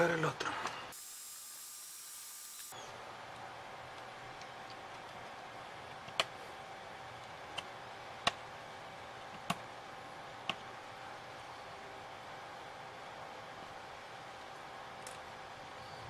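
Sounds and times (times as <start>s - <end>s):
faint steady hiss: 0.0s - 5.4s.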